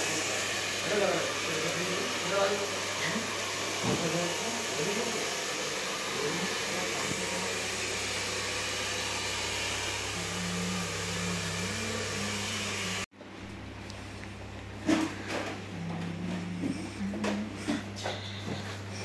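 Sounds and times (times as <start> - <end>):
hair dryer blowing: 0.0 - 13.1.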